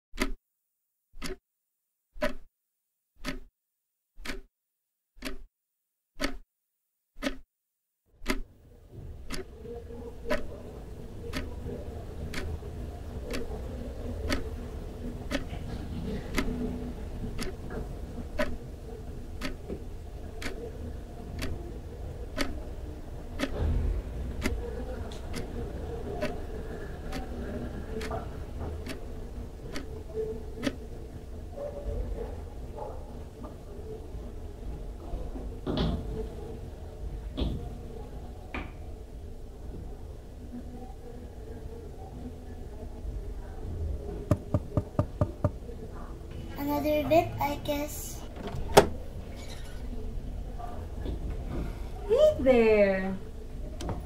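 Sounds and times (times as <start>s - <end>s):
clock ticking: 0.2s - 0.4s, 1.2s - 1.4s, 2.2s - 2.5s, 3.2s - 3.5s, 4.2s - 4.5s, 5.2s - 5.5s, 6.2s - 6.4s, 7.2s - 7.4s, 8.2s - 8.5s, 9.2s - 9.5s, 10.2s - 10.5s, 11.2s - 15.6s, 16.3s - 16.7s, 17.3s - 18.7s, 19.3s - 19.8s, 20.4s - 20.7s, 21.3s - 21.6s, 22.3s - 22.6s, 23.3s - 23.6s, 24.4s - 24.7s, 27.1s - 27.3s, 28.8s - 29.9s, 30.6s - 30.8s.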